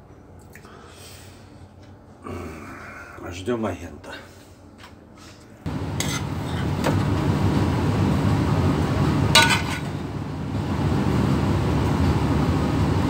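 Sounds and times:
low hum of machinery: 0:00.0 - 0:13.0
spoon clinking against metal pot: 0:09.4 - 0:09.9.

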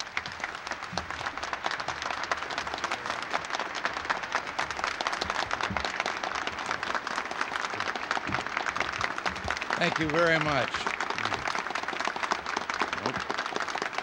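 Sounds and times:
audience applauding: 0:00.0 - 0:14.0.

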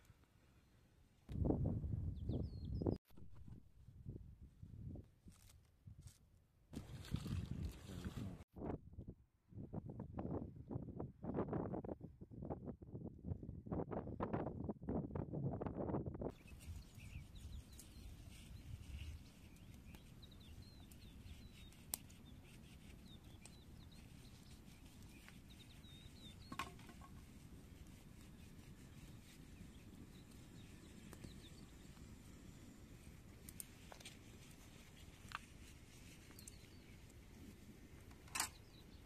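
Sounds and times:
wind buffeting microphone: 0:01.3 - 0:03.0, 0:06.8 - 0:21.8
faint small bird chirps: 0:16.3 - 0:27.2, 0:28.4 - 0:32.1, 0:36.0 - 0:37.0.

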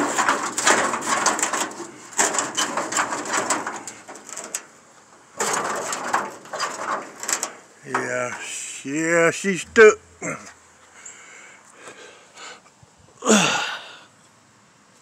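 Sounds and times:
metal hood rattling and scraping: 0:00.0 - 0:08.6.

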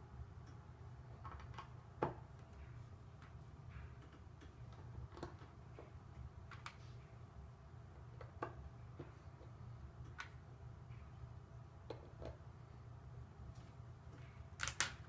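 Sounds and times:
low steady hum: 0:00.0 - 0:15.0
plastic bricks clicking: 0:14.6 - 0:15.0.

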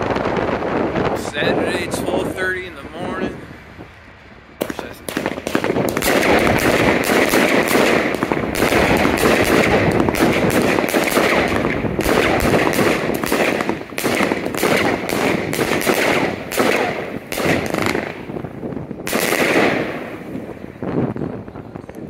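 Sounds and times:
firework crackling: 0:00.0 - 0:03.0, 0:04.5 - 0:22.0
firework shots: 0:04.6 - 0:21.4.

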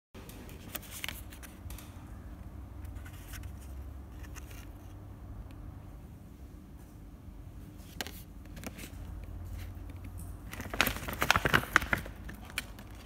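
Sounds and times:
low steady hum: 0:00.2 - 0:13.0
plastic wrapping crinkling: 0:08.1 - 0:13.0.

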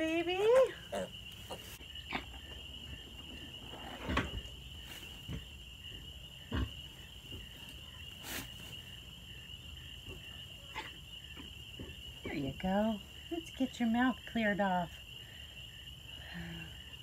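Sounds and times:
night insects chorus: 0:00.0 - 0:17.0
towel and hay rustling: 0:07.4 - 0:09.0.

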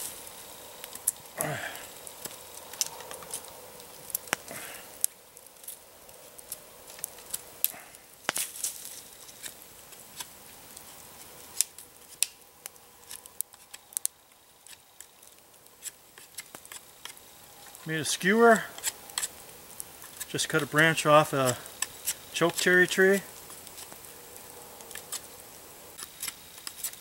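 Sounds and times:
campfire crackling: 0:00.0 - 0:27.0
knife shaving a branch: 0:02.0 - 0:12.4, 0:13.0 - 0:13.9, 0:14.6 - 0:17.8, 0:18.6 - 0:20.6, 0:21.3 - 0:22.7, 0:23.3 - 0:24.1, 0:24.8 - 0:27.0.

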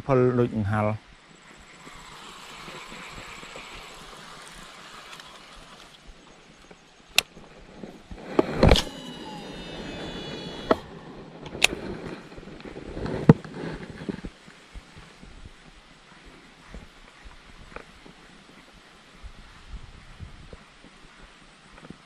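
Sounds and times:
fishing reel clatter: 0:01.3 - 0:06.7
fishing reel clicks: 0:01.5 - 0:06.1
faint high whine falling in pitch: 0:08.2 - 0:11.6.

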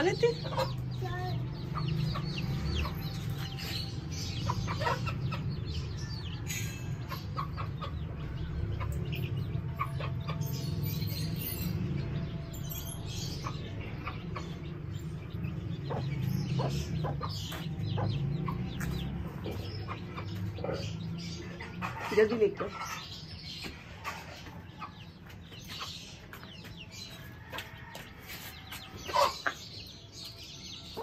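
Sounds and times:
hen clucking: 0:00.0 - 0:03.6, 0:04.3 - 0:06.3, 0:07.1 - 0:09.1, 0:28.9 - 0:29.8
chicks peeping: 0:00.0 - 0:31.0.

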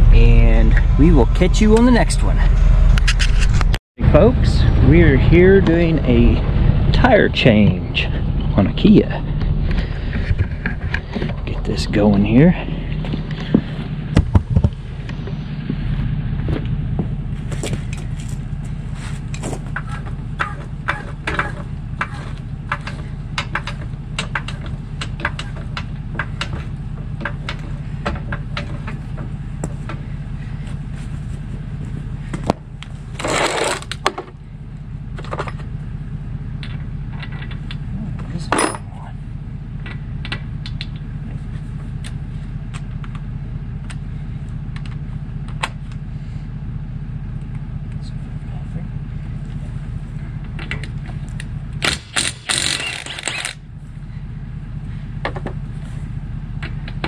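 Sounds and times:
low hum: 0:00.0 - 0:57.0
metal tools clinking: 0:38.5 - 0:39.0.

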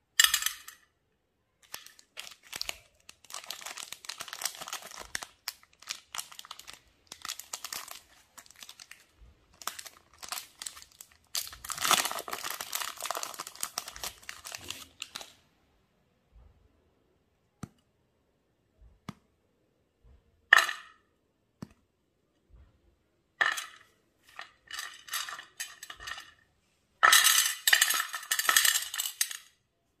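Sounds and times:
wrapper crinkling and tearing: 0:01.6 - 0:15.3.

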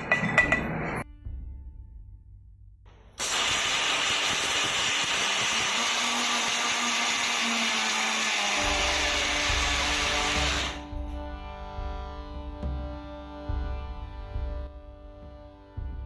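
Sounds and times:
electric mixer grinder running: 0:03.3 - 0:10.9.

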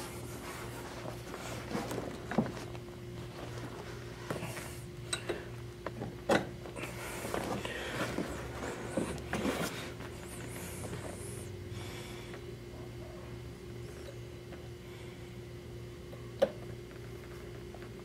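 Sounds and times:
upholstery rubbing and rustling: 0:00.0 - 0:04.5, 0:06.9 - 0:11.3
steady low hum: 0:00.0 - 0:18.0.

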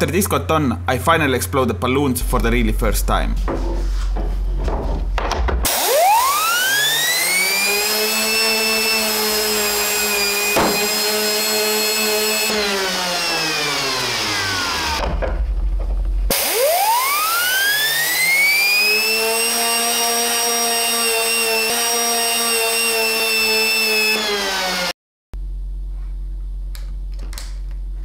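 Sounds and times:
compressor whine: 0:04.1 - 0:19.5.

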